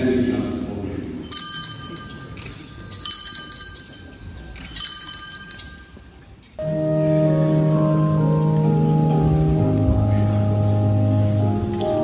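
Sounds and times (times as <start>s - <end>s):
altar bells jingling: 1.2s - 6.4s
sustained organ chord: 6.6s - 12.0s.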